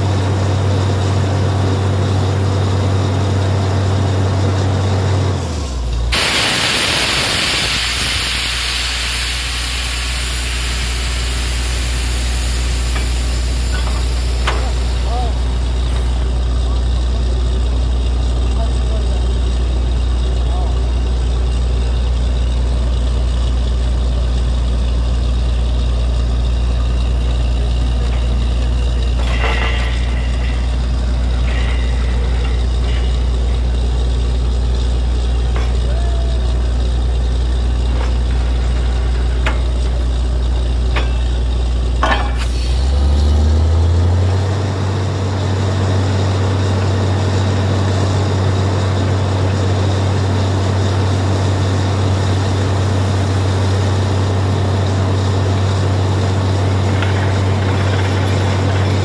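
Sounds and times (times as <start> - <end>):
heavy drilling rig engine drone: 0.0 - 59.0
air blowing water out of bore: 6.1 - 16.2
metallic clanks: 12.6 - 16.3, 27.7 - 36.0, 37.5 - 42.6, 56.2 - 59.0.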